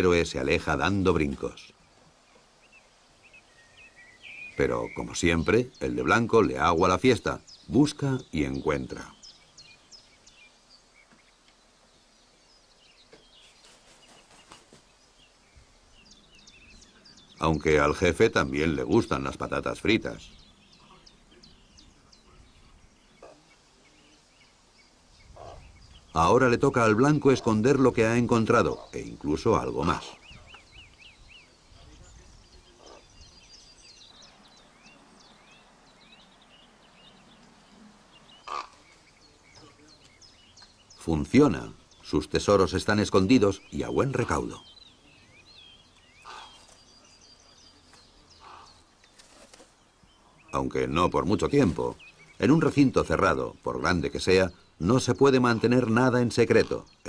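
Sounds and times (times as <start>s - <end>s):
small birds chirping: 0.0s - 57.0s
raven harsh call: 37.8s - 38.9s, 46.2s - 46.7s, 48.4s - 48.9s.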